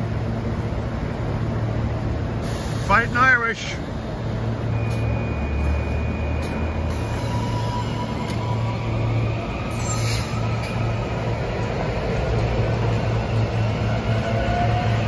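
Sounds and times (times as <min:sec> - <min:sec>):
train rumble and hum: 0:00.0 - 0:15.0.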